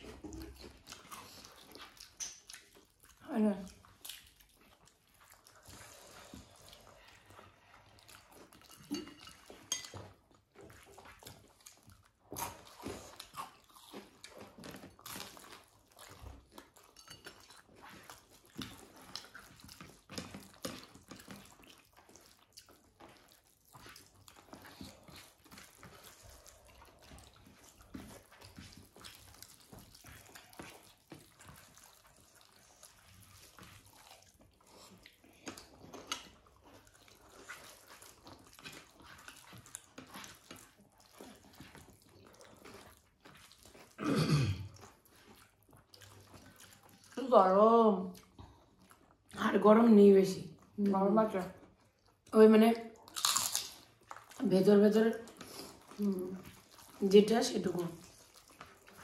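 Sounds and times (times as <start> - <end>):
wet squishes and clicks: 0.0 - 5.5, 7.3 - 44.0, 50.5 - 59.0
person chewing soft food: 0.0 - 47.2, 48.0 - 49.4, 51.4 - 52.3, 52.9 - 59.0.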